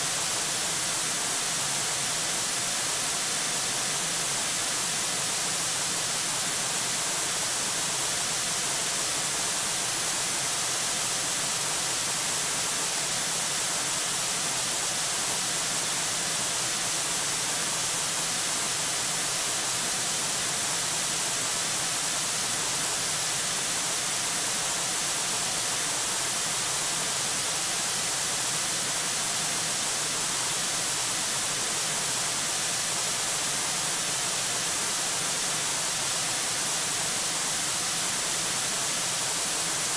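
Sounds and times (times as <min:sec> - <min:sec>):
microphone static hiss: 0:00.0 - 0:39.9.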